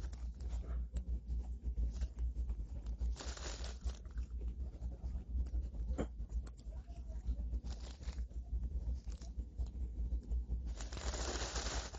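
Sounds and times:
low rumble: 0:00.0 - 0:11.9
plastic wrapper crinkling: 0:03.1 - 0:04.1, 0:10.7 - 0:11.9.

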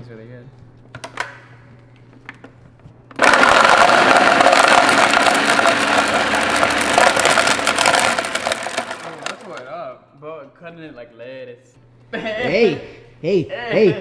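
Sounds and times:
blender chopping plastic bottle: 0:03.1 - 0:09.6.

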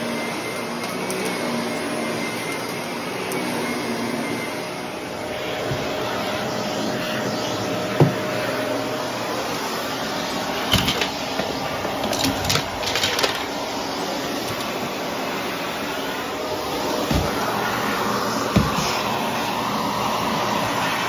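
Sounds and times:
upright vacuum cleaner running: 0:00.0 - 0:21.0
clicks and rattles: 0:11.9 - 0:13.5.

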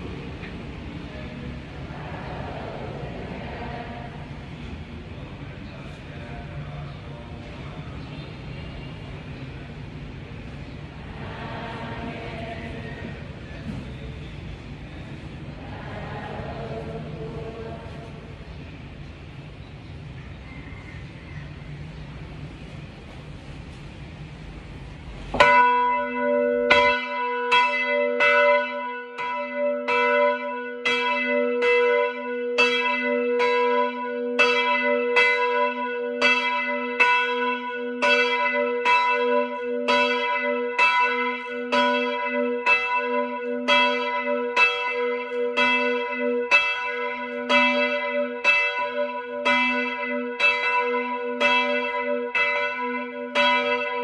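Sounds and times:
church bell ringing: 0:11.1 - 0:13.9, 0:15.6 - 0:18.4, 0:25.4 - 0:54.0.

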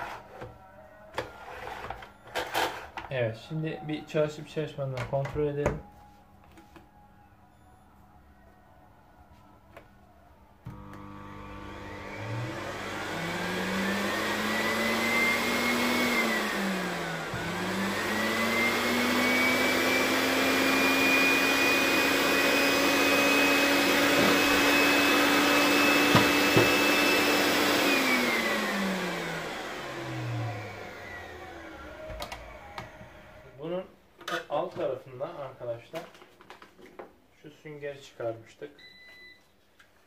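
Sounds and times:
vacuum cleaner motor whining: 0:10.6 - 0:33.6.

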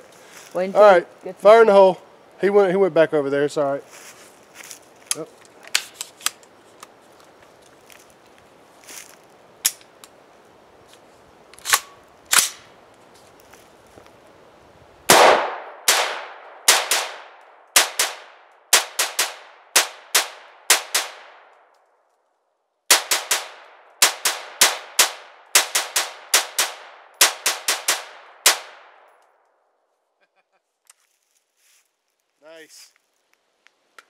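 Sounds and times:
rifle firing rapid shots: 0:15.1 - 0:21.4, 0:22.9 - 0:28.9.

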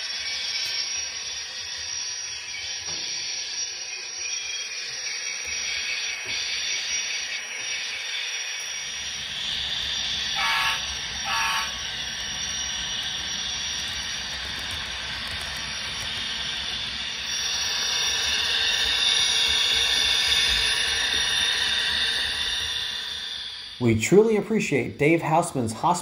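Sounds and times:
turbine whine and hiss: 0:00.0 - 0:26.0
locomotive horn blasts: 0:10.4 - 0:11.8.

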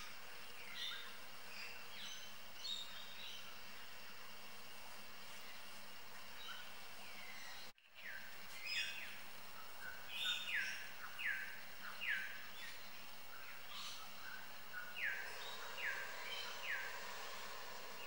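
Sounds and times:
birds giving scolding calls: 0:13.8 - 0:18.0.

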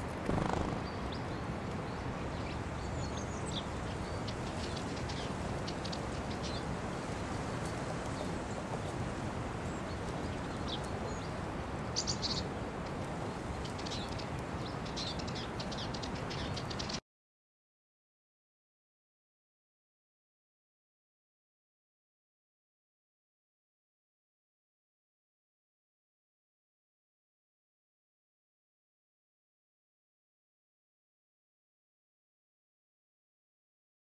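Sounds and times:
small birds chirping: 0:00.0 - 0:06.8, 0:09.6 - 0:17.0
outdoor background hiss: 0:00.0 - 0:17.0.

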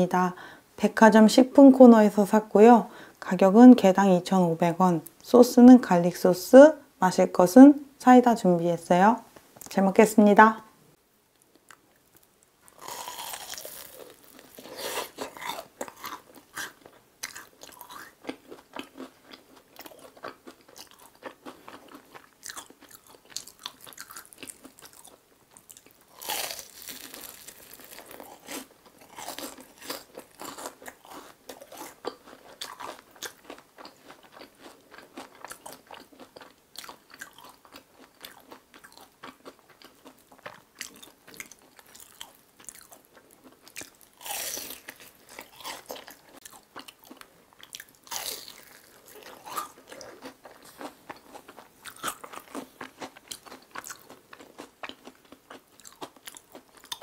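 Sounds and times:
crunching and chewing fried food: 0:11.4 - 0:57.0.

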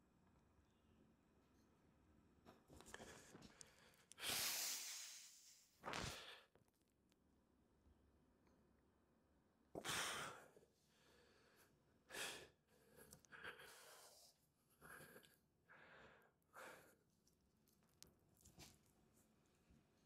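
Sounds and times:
person's sharp exhalations: 0:04.2 - 0:06.5.

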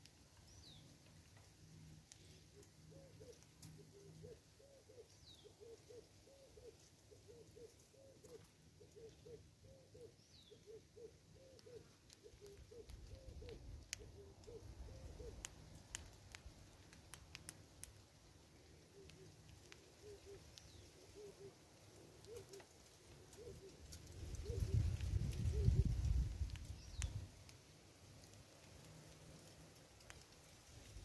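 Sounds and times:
low bird hoots: 0:02.2 - 0:15.5, 0:18.7 - 0:27.1
sharp ticks: 0:15.2 - 0:18.0.

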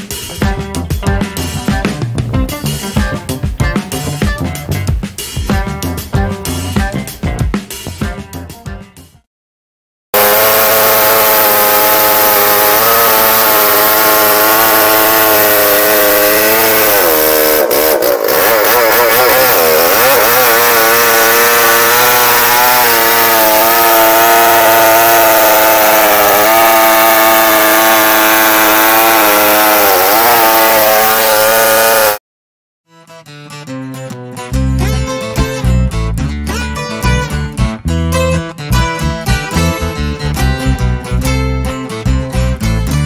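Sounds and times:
chainsaw ripping a log: 0:10.2 - 0:32.2.

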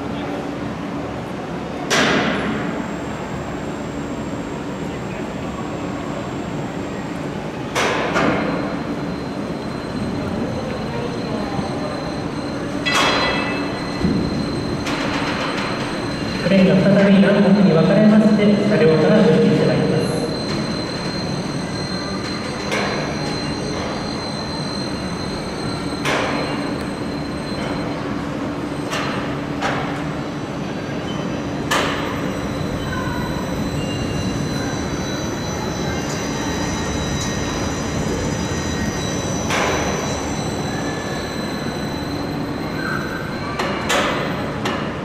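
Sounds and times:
machinery hum with high whine: 0:00.0 - 0:45.0
sharp metallic clanks: 0:12.8 - 0:16.3.

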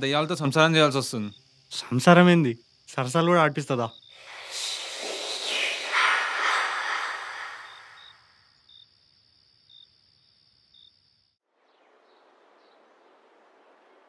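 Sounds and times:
high insect drone: 0:00.0 - 0:11.4
insect chirps: 0:00.0 - 0:13.1
loud hiss: 0:04.2 - 0:08.4.

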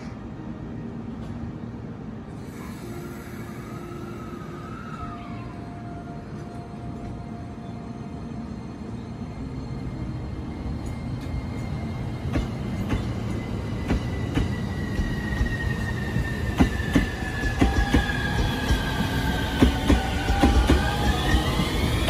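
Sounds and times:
train wheels clicking over joints: 0:10.8 - 0:22.0.

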